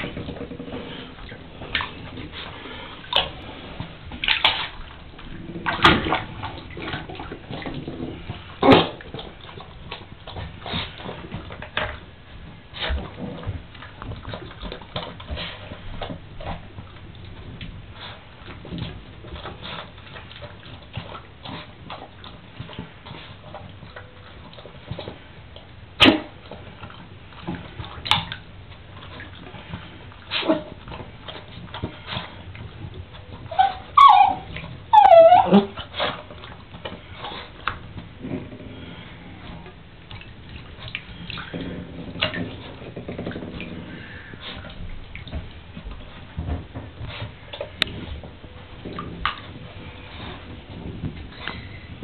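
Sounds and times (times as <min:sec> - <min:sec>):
dog whining yips: 0:33.5 - 0:35.8.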